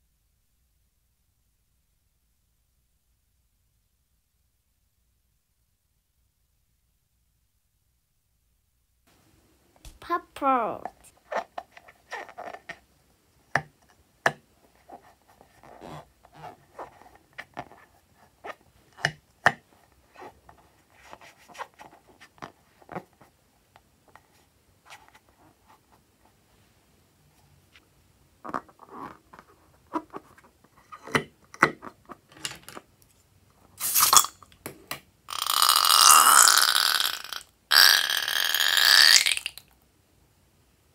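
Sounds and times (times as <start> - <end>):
balloon squishing and squeaking: 11.2 - 12.7, 15.6 - 17.6, 35.3 - 39.6
loud rasping buzz of slime: 35.3 - 39.6.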